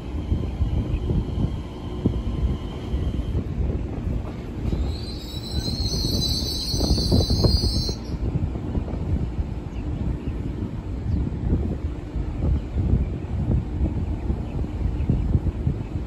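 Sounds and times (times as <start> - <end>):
train rumbling on rails: 0.0 - 16.0
high squeal from train: 0.2 - 3.5, 4.2 - 8.3.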